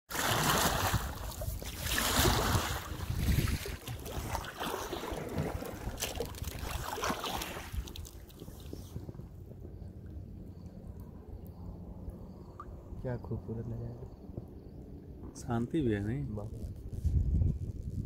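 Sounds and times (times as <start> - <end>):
water splashing around boat: 0.1 - 10.4
wind buffeting microphone: 0.5 - 18.0.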